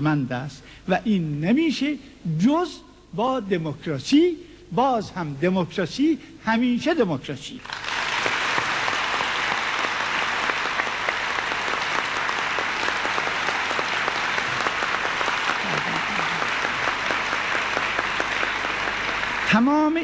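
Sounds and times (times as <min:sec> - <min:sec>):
audience applauding: 0:07.6 - 0:20.0.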